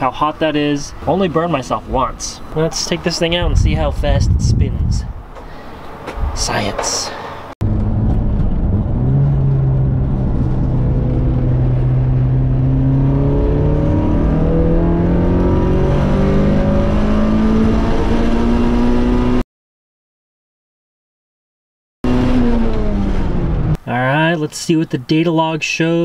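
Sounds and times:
car engine revving at full throttle: 7.6s - 19.4s, 22.0s - 23.8s.

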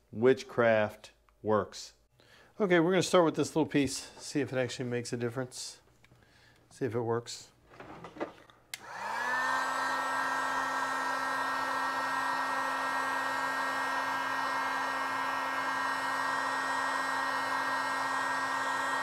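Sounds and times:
heat gun fan whirring: 7.8s - 19.0s.

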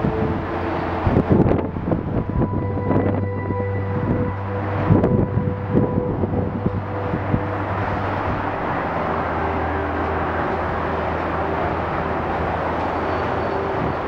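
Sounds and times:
low engine hum: 0.0s - 14.0s
mechanical noise: 0.0s - 14.0s.

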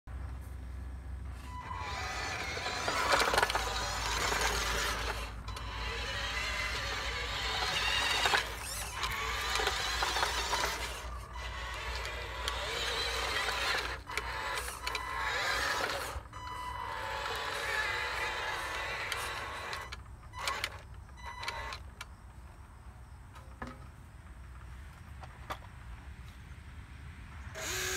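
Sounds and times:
electric gear motors whining: 1.3s - 22.2s, 27.6s - 27.9s.

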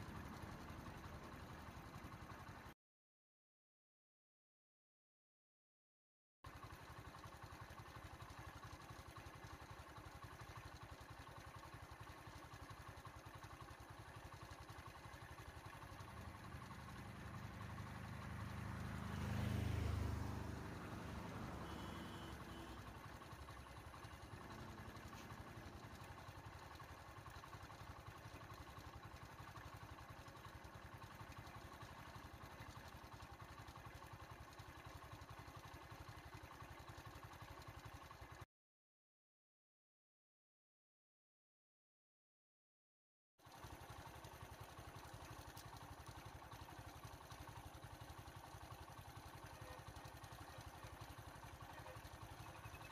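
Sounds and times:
truck driving past: 17.2s - 22.8s.

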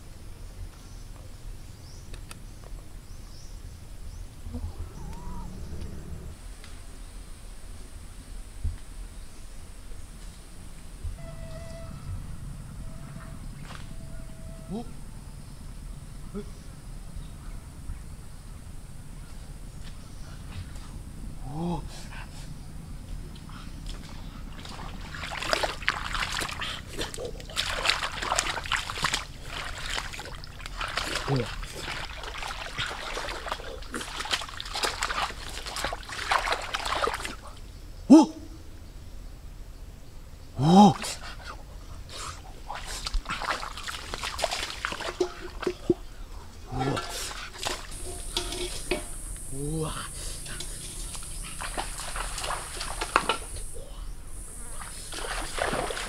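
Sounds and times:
wading through a muddy puddle: 12.8s - 14.9s, 19.8s - 37.7s, 40.6s - 54.0s, 54.7s - 56.0s.

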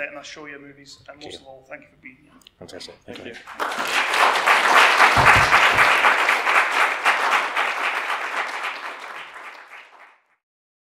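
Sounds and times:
audience applauding: 3.2s - 10.3s.

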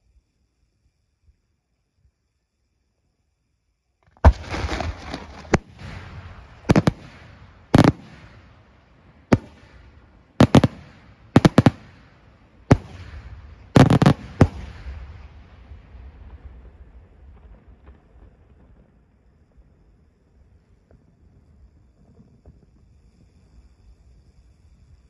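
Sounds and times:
firework shells bursting: 4.1s - 8.7s, 9.3s - 15.4s.

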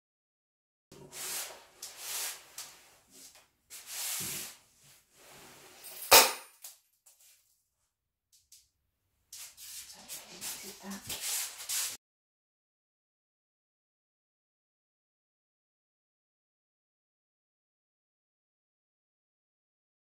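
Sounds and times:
hands rubbing fabric: 9.4s - 12.0s.

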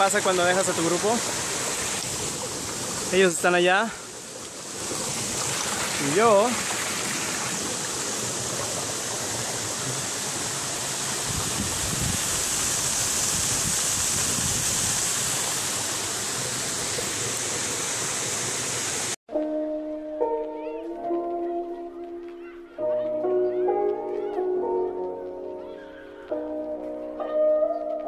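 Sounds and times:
waterfall rushing over rocks: 0.0s - 19.2s
music: 19.3s - 28.0s.

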